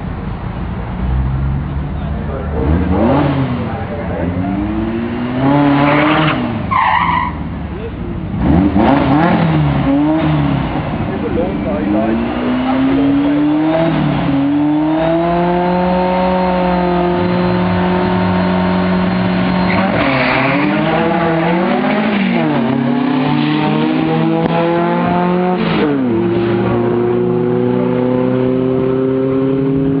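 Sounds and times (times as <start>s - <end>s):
car engines revving: 0.0s - 30.0s
tyre squeal: 5.6s - 7.5s, 16.4s - 22.8s.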